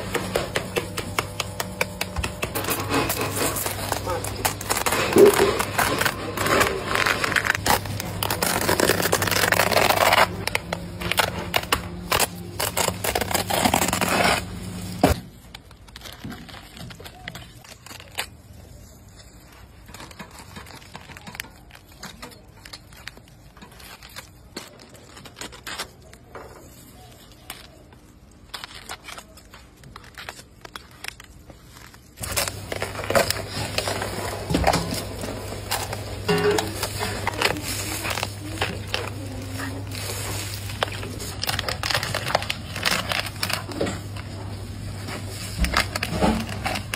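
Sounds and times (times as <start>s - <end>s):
loud background noise: 32.2s - 46.9s.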